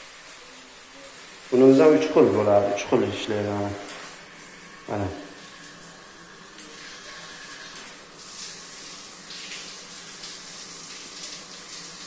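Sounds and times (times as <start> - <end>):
shower spray hitting tile: 3.8 - 4.2.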